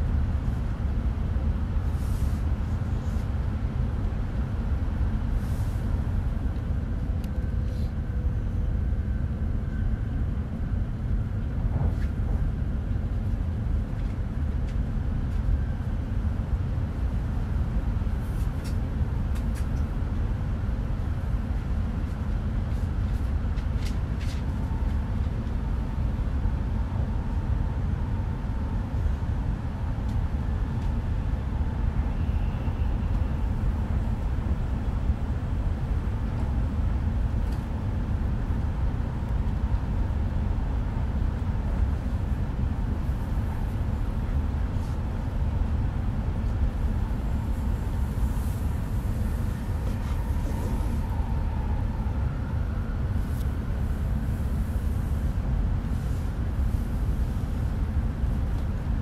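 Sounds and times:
train cabin low rumble: 0.0 - 59.0
faint whine: 27.2 - 55.2.

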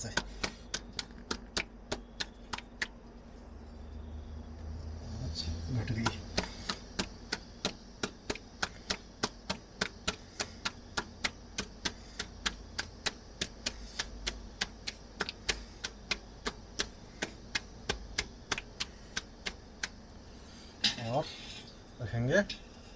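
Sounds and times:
rolling pin clacking on board: 0.0 - 3.0, 5.9 - 20.0.

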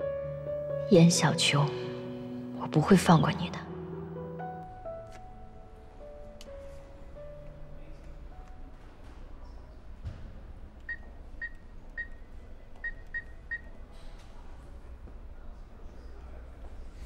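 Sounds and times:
soft thump: 10.0 - 10.5
keypad beeps: 10.9 - 13.7.

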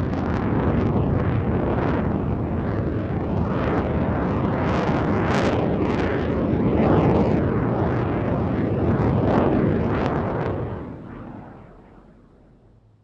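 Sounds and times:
jet aircraft rumble: 0.0 - 13.0.

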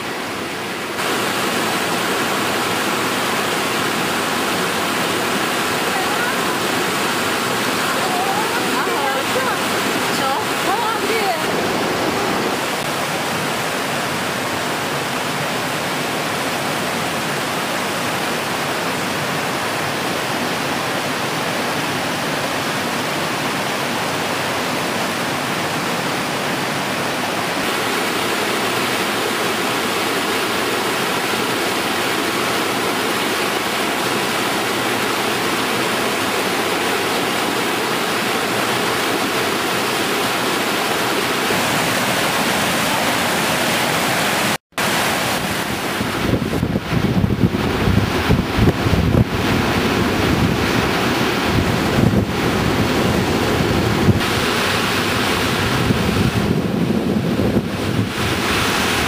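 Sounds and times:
stream and waterfall rushing: 0.0 - 59.0.

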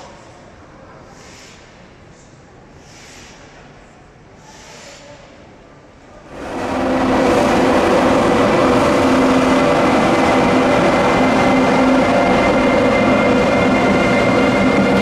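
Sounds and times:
train running past: 5.5 - 15.0
steady tones: 6.3 - 15.0.

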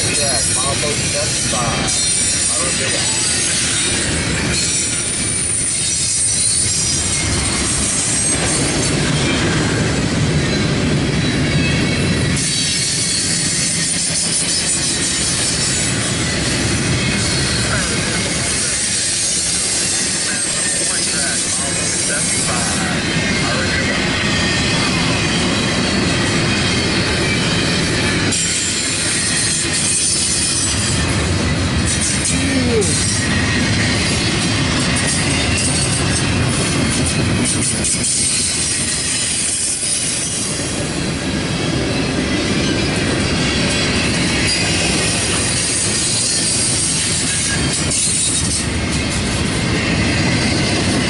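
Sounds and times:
high wheel squeal: 0.0 - 40.9, 41.8 - 51.0
train wheels rumbling on rail: 0.0 - 51.0.

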